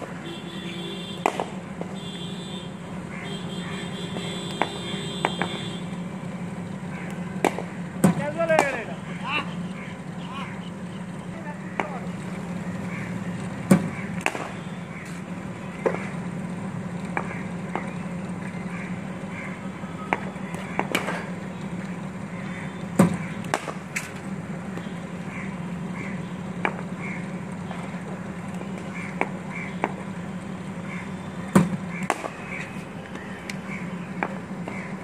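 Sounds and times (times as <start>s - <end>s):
cricket ball cracking off bat: 1.2s - 2.0s, 7.1s - 8.9s, 13.7s - 14.6s, 20.1s - 21.3s, 23.0s - 24.2s, 31.5s - 32.4s.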